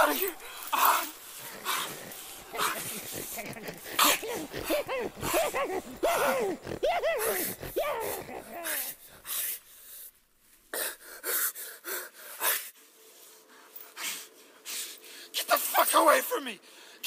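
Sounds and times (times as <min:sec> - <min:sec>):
person giving high cries: 0:00.0 - 0:09.1
breathy gasps: 0:00.0 - 0:10.1.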